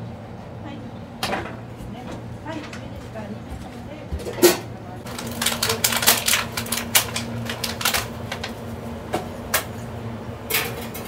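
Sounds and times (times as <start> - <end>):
steady low hum: 0.0 - 11.0
metal bowls and utensils clattering: 4.1 - 8.4, 10.5 - 11.0.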